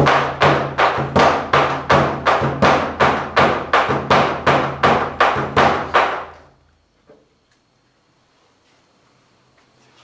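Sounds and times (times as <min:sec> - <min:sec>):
drum beaten in steady rhythm: 0:00.0 - 0:06.3.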